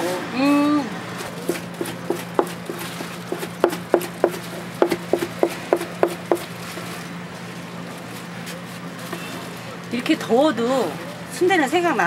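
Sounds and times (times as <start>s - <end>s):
knife chopping on cutting board: 1.4s - 6.5s.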